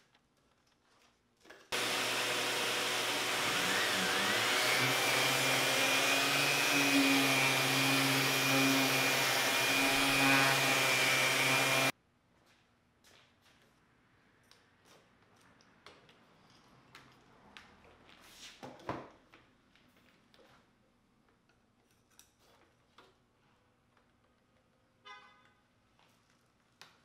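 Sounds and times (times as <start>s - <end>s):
shop vacuum running: 1.7s - 11.9s
orbital sander sanding board: 1.8s - 11.9s.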